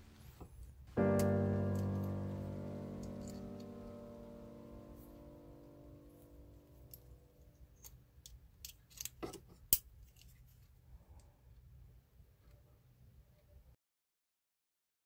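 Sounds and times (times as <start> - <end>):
background music: 0.0 - 7.4.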